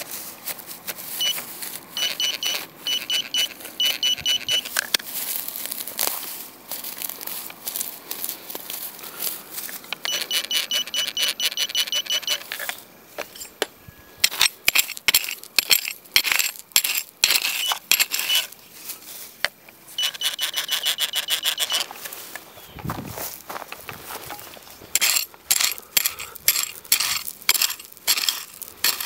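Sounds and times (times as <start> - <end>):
stones and gravelly soil scraping: 0.0 - 29.0
metal detector beeping: 1.0 - 5.0, 10.0 - 16.0, 16.9 - 18.6, 19.9 - 22.8, 24.3 - 29.0.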